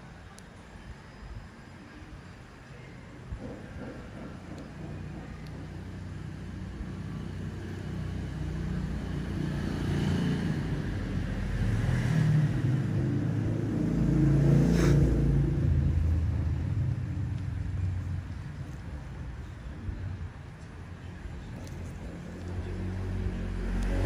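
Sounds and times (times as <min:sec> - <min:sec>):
vehicle engine rumble: 0:00.0 - 0:24.0.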